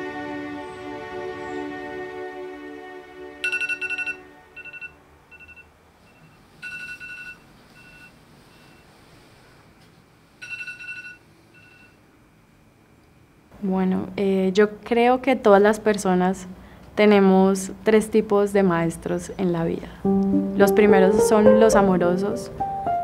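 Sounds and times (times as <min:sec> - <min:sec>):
background music: 0:00.0 - 0:05.3, 0:20.0 - 0:23.0
smartphone electronic chime: 0:03.4 - 0:08.1, 0:10.4 - 0:12.0.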